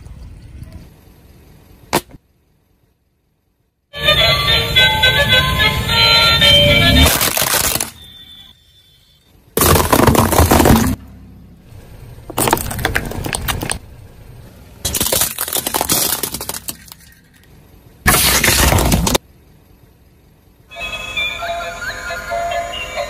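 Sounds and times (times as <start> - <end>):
plastic bottle bursting: 7.0 - 8.0, 9.6 - 11.0, 18.1 - 19.2
plastic objects crunching under tyre: 7.0 - 8.1, 9.6 - 11.0, 12.2 - 13.9, 14.8 - 19.2.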